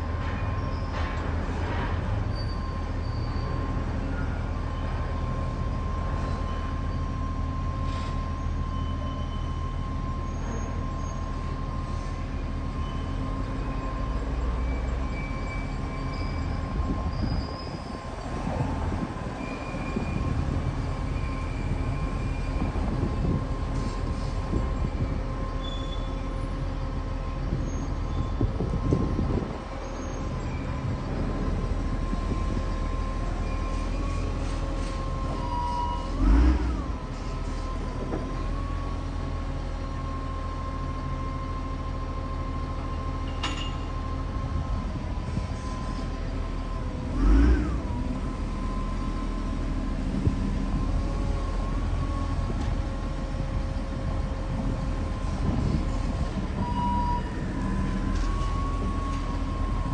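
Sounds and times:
heavy machinery whining: 0:44.0 - 0:59.9.

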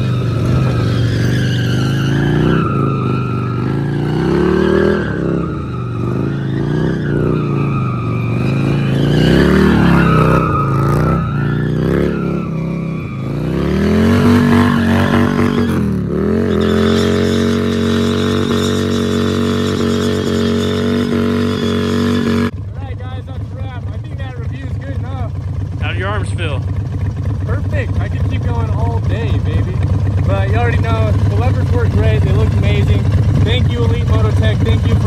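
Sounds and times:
tyre skidding on pavement: 0:00.0 - 0:22.5
motorcycle engine revving: 0:00.0 - 0:35.0.

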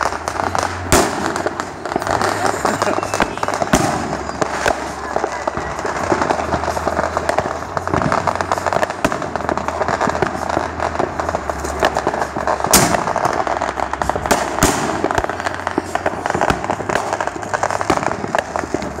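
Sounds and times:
firecrackers crackling: 0:00.0 - 0:19.0
fireworks bangs: 0:00.0 - 0:19.0.

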